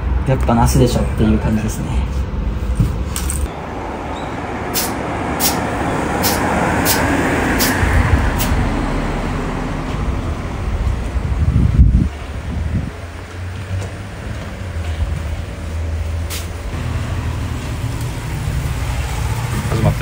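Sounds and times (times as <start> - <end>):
vehicle passing: 0.0 - 20.0.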